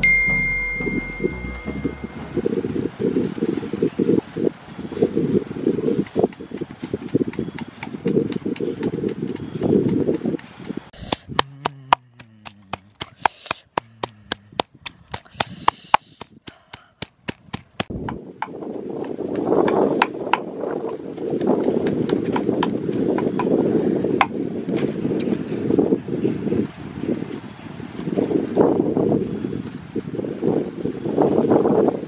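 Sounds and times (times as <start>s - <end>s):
wind rumble on microphone: 0.0s - 13.1s, 13.8s - 32.0s
stick pounding in a cup: 6.3s - 21.0s.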